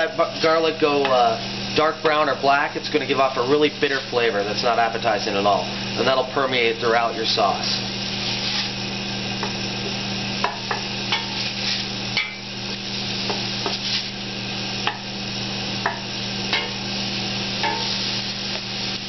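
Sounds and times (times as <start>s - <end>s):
garlic sizzling in hot oil: 0.0s - 19.0s
steady low hum: 0.0s - 19.0s
wooden spoon scraping a pot: 8.2s - 8.8s, 11.1s - 11.9s.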